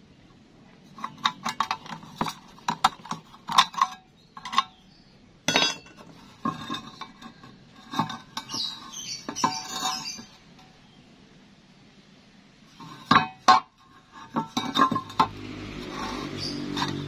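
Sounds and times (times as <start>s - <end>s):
ringing metal clank: 5.5s - 6.0s
metal clattering: 5.5s - 10.7s, 12.7s - 17.0s.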